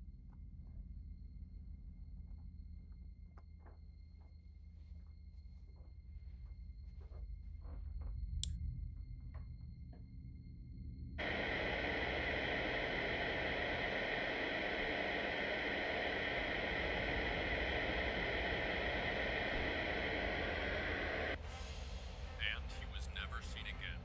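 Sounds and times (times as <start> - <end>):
white noise machine hissing: 11.2 - 24.0.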